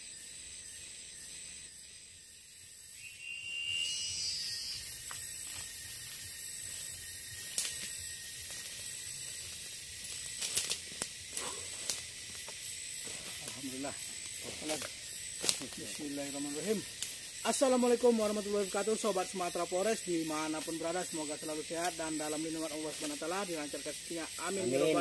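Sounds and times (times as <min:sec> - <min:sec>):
insect chorus drone: 0:00.0 - 0:25.0
whining insect call: 0:00.0 - 0:25.0
footsteps on dry leaves: 0:04.9 - 0:11.2.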